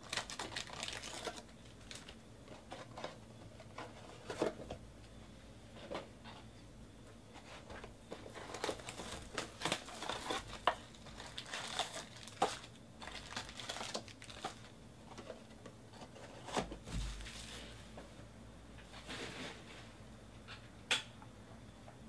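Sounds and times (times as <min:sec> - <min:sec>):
card packs crinkling and rustling: 0:00.0 - 0:04.8, 0:07.7 - 0:17.8.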